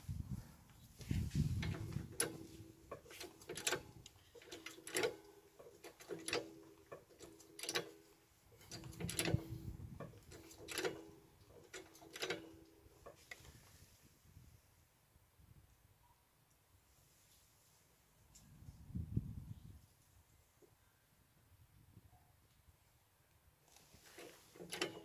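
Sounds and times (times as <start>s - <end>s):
trolley jack pumping clicks: 1.6s - 8.0s, 8.6s - 13.4s, 24.0s - 25.0s.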